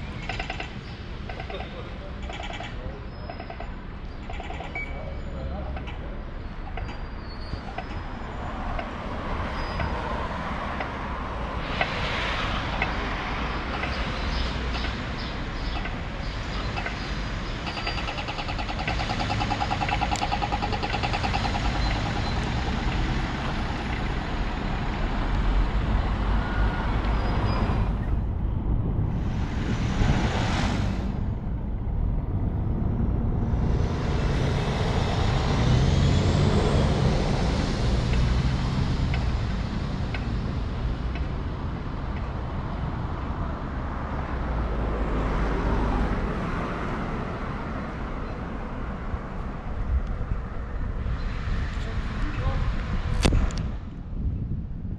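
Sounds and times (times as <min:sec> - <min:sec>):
bus passing: 0:00.0 - 0:54.9
traffic rumble: 0:00.0 - 0:54.9
engine whine: 0:15.8 - 0:42.4.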